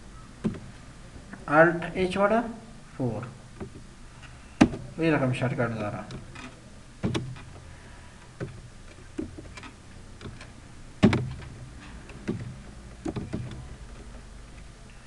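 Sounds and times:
low steady hum: 0.0s - 15.0s
keyboard keys clacking: 8.3s - 14.8s.

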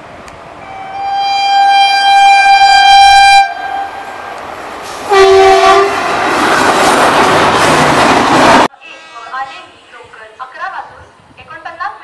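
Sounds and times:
train rushing past: 0.0s - 9.7s
locomotive horn blast: 0.6s - 4.1s, 5.1s - 6.0s.

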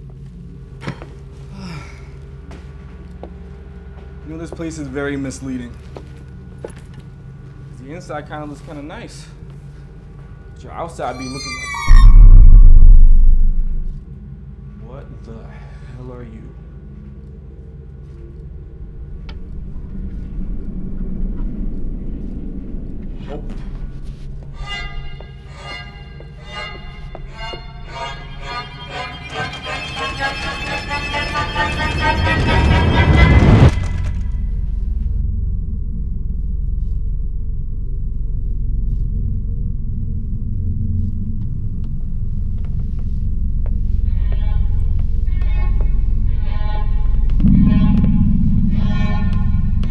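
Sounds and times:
faint thin tone: 11.0s - 13.9s
low rumbling drone: 11.0s - 14.7s, 16.8s - 25.2s, 26.8s - 49.9s.

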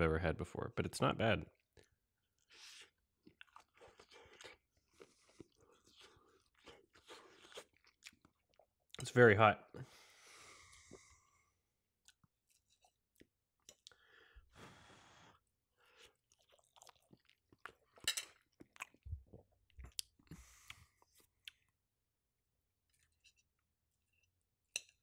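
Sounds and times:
close-up chewing: 1.6s - 8.7s, 15.8s - 21.8s.

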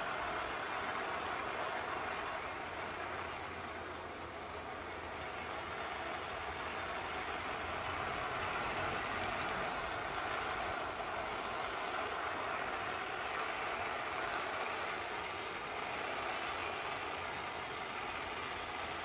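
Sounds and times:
gas torch hissing: 0.0s - 19.0s.

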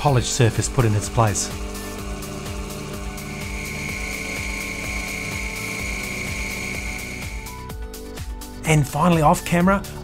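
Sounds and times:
lathe high whine: 0.0s - 7.7s
background music: 0.0s - 10.0s.

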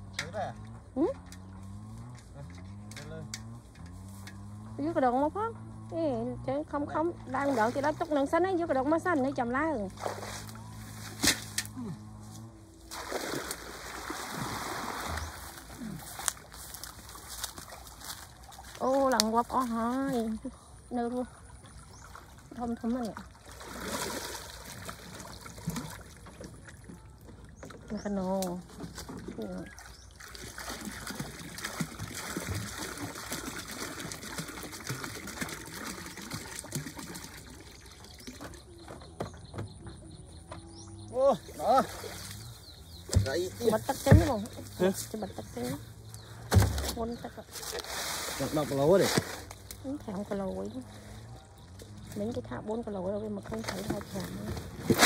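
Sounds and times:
water splashing and trickling: 0.0s - 55.0s
water trickling and dripping: 12.9s - 39.0s.

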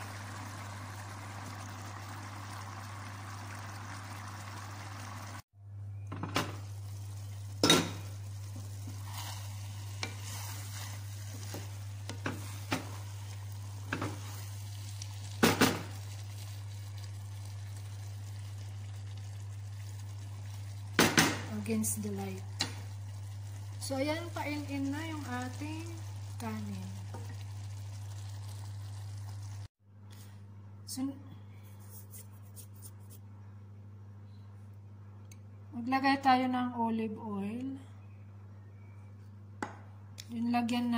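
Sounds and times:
rice boiling and bubbling: 0.0s - 5.5s, 6.1s - 29.8s.

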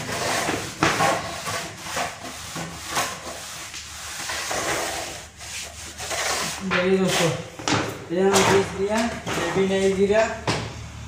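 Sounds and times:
hand float scraping plaster: 0.0s - 7.6s.

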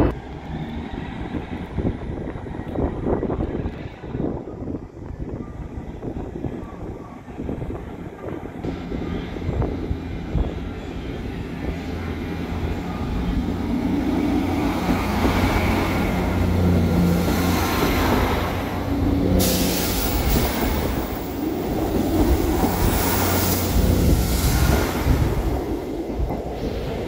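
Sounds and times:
train engine hum: 0.0s - 27.0s
train wheels on rails: 8.2s - 27.0s
sharp hiss: 19.2s - 21.3s.

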